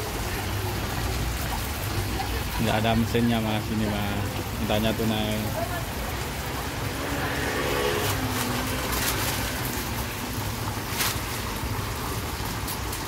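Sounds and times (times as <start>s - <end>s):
oil sizzling in deep fryer: 0.0s - 13.0s
plastic bag crinkling: 8.0s - 11.6s.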